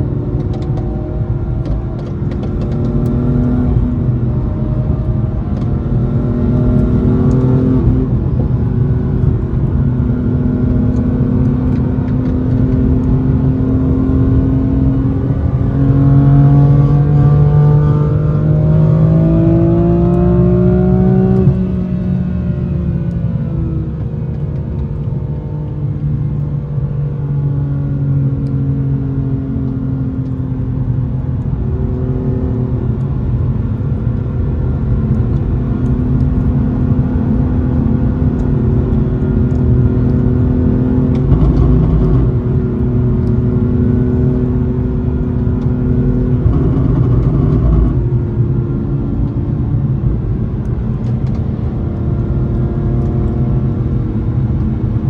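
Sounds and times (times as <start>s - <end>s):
car engine running: 0.0s - 55.0s
low road rumble: 0.0s - 55.0s.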